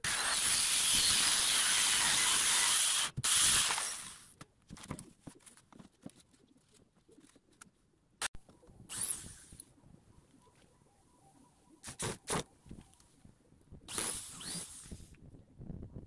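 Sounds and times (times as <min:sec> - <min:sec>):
circular saw cutting plywood: 0:00.0 - 0:04.2.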